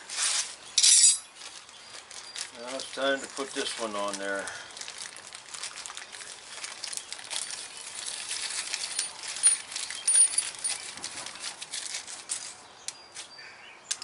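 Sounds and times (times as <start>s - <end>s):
metal nuts clinking on concrete: 0.8s - 1.3s, 7.4s - 10.9s
crinkling and rustling: 1.2s - 13.3s.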